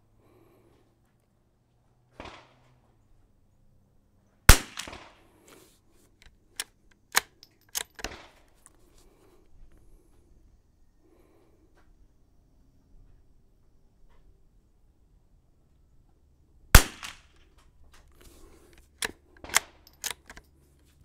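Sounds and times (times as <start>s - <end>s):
rifle shot: 2.2s - 2.8s, 4.5s - 5.4s, 7.1s - 8.5s, 16.7s - 17.5s, 19.4s - 20.2s
rifle bolt clicking: 4.5s - 5.1s, 6.2s - 8.8s, 16.8s - 17.4s, 18.0s - 20.5s.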